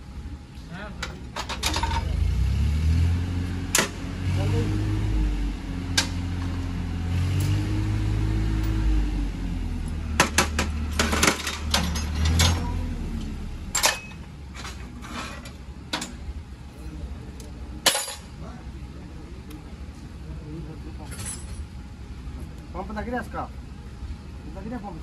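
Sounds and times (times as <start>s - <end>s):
low mechanical hum: 0.0s - 25.0s
metal tools clinking: 11.0s - 12.6s, 13.7s - 16.2s, 17.9s - 18.3s, 21.0s - 21.7s.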